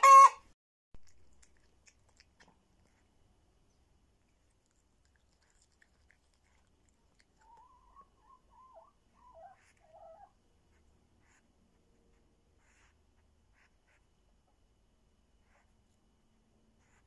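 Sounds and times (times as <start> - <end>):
cat gnawing a bone: 1.0 - 3.5, 4.1 - 8.2.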